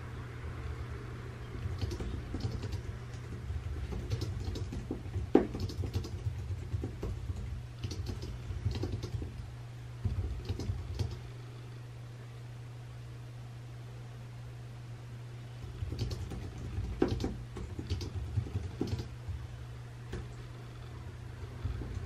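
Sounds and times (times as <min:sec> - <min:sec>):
steady low hum: 0:00.0 - 0:22.0
typing on a keyboard: 0:01.6 - 0:09.4, 0:10.0 - 0:11.2, 0:15.6 - 0:19.4.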